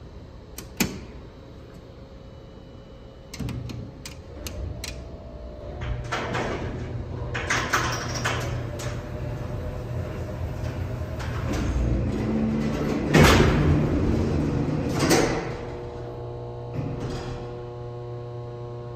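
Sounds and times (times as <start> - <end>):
low elevator machine hum: 0.0 - 18.9
elevator doors rattling and clanking: 3.4 - 17.5.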